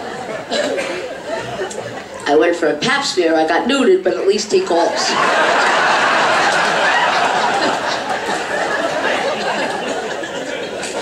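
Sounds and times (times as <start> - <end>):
audience laughing: 0.0 - 2.2, 4.8 - 11.0
audience chattering: 0.0 - 11.0.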